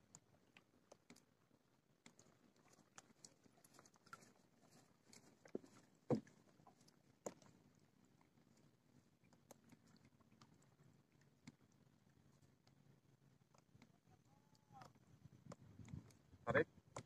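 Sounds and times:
faint ticks and taps: 0:11.3 - 0:17.0.

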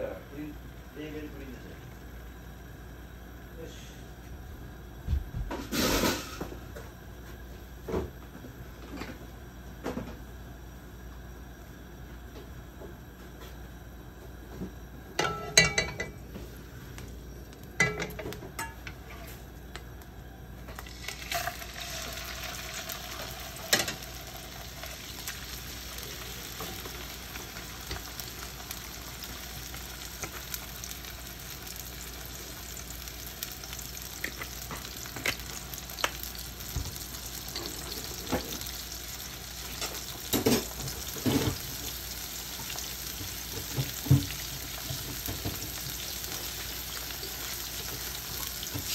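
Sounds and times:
fish sizzling in a frying pan: 0:20.7 - 0:48.9.

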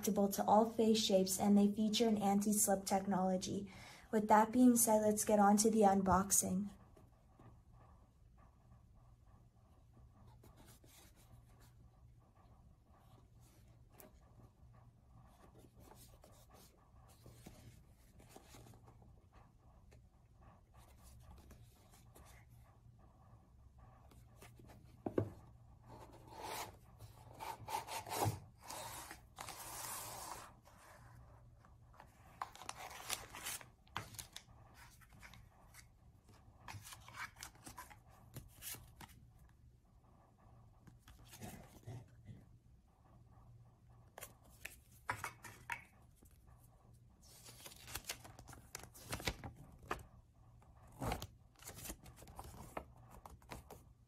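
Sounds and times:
cards shuffling: 0:47.4 - 0:50.0.

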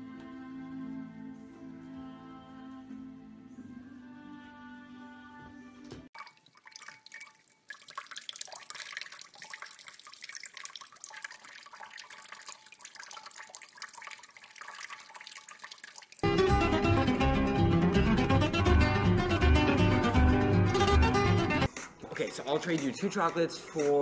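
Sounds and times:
music: 0:00.0 - 0:06.1, 0:16.2 - 0:24.0
tap water running and splashing: 0:06.1 - 0:16.2
loud plucked-string music: 0:16.2 - 0:21.7.

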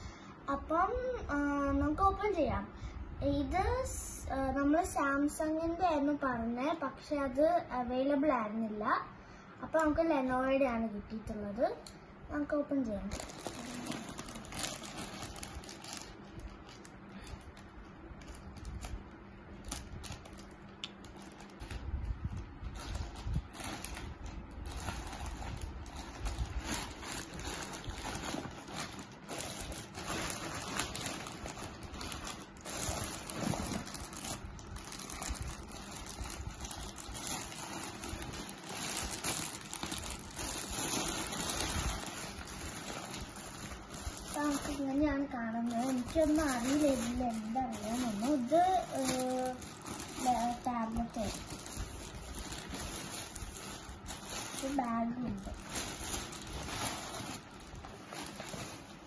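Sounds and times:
plastic crinkling and rustling: 0:12.4 - 0:59.0
plastic mailer tearing: 0:13.0 - 0:16.9, 0:22.7 - 0:59.0.

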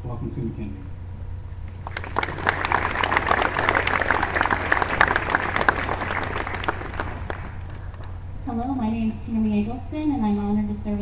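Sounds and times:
audience applauding: 0:01.7 - 0:08.2.

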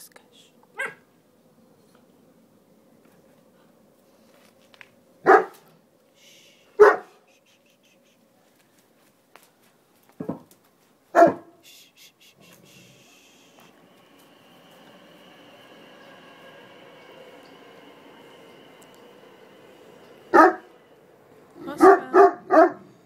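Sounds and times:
dog barking: 0:00.8 - 0:01.1, 0:05.2 - 0:05.7, 0:06.8 - 0:07.2, 0:11.2 - 0:11.6, 0:20.3 - 0:20.6, 0:21.8 - 0:22.9.

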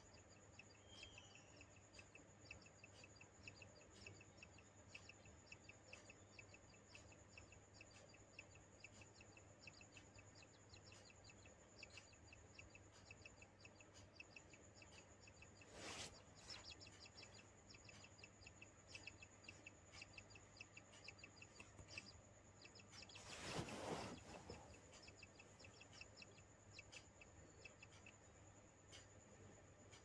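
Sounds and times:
rapid high chirping: 0:00.0 - 0:30.0
brief rustle: 0:23.1 - 0:24.8.

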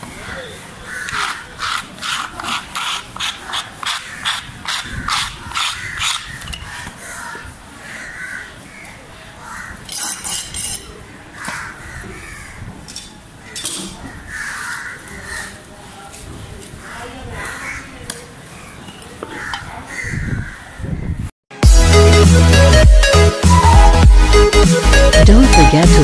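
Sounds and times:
crows cawing: 0:00.1 - 0:02.2, 0:03.4 - 0:09.9, 0:11.2 - 0:12.7, 0:13.4 - 0:15.6, 0:16.8 - 0:21.1.

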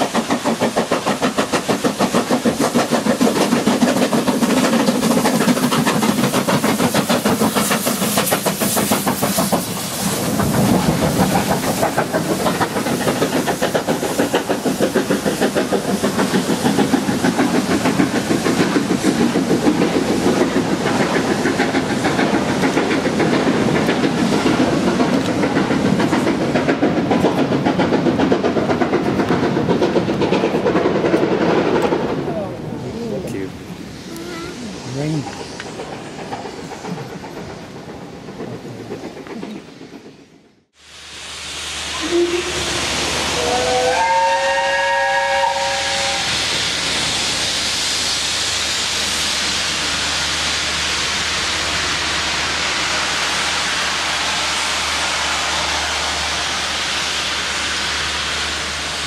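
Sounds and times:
train coaches clicking over rail joints: 0:00.0 - 0:32.2
steam locomotive exhaust beats: 0:00.0 - 0:59.0.

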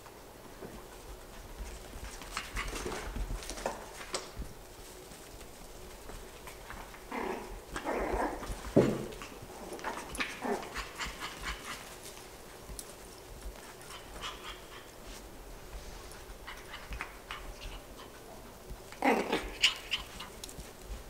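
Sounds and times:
puppy noises: 0:01.0 - 0:04.4, 0:05.4 - 0:21.0
light clicks and taps: 0:11.5 - 0:15.0.

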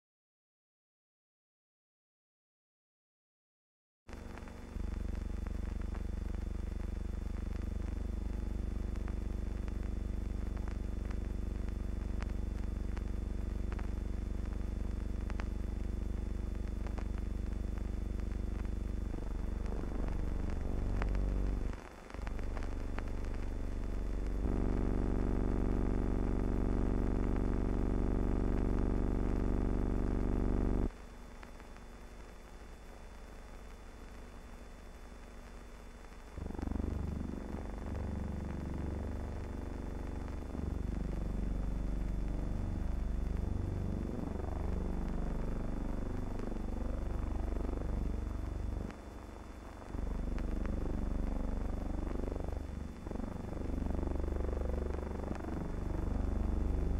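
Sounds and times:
low mechanical rumble: 0:04.1 - 0:30.9, 0:36.4 - 0:56.9
droning electrical hum: 0:04.1 - 0:56.9.

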